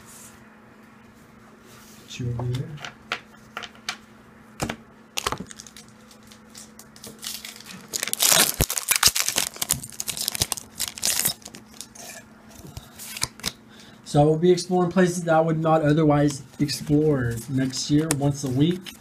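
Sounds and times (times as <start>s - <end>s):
foil wrapper tearing and crinkling: 5.2s - 12.0s.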